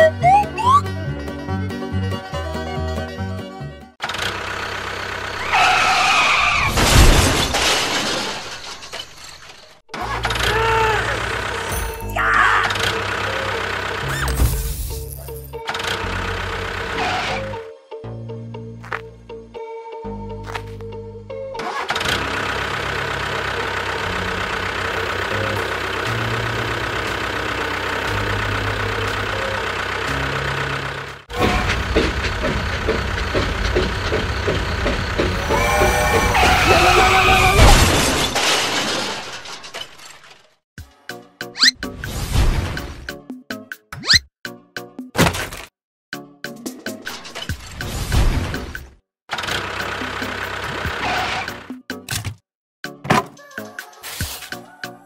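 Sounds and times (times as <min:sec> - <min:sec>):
short pitched tone: 0:00.0 - 0:00.8
tractor engine running: 0:04.0 - 0:06.4, 0:08.3 - 0:17.3, 0:21.6 - 0:37.6, 0:49.3 - 0:51.7
loud crash: 0:06.5 - 0:09.7, 0:35.3 - 0:40.0.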